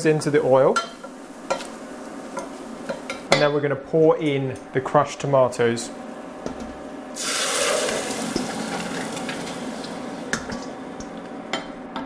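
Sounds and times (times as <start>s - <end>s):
tomatoes sizzling in hot oil: 7.2s - 10.3s.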